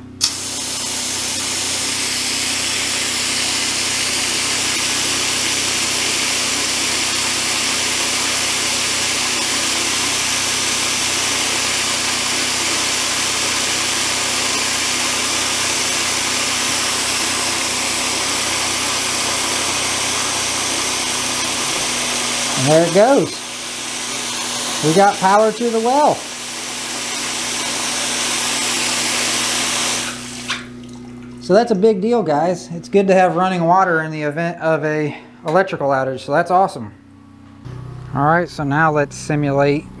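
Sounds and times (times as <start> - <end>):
water running hard from spigot: 0.2 - 31.4.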